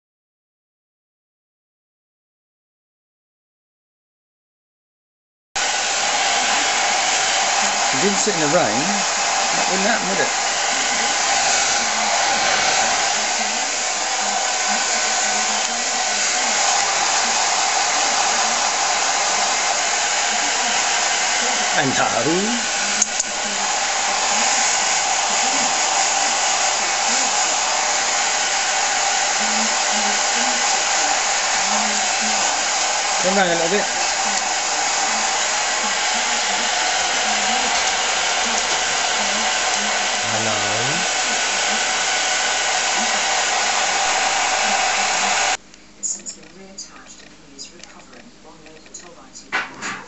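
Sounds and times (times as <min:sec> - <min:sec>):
hair dryer running: 0:05.6 - 0:45.6
faint low speech: 0:06.4 - 0:27.9, 0:35.9 - 0:42.0.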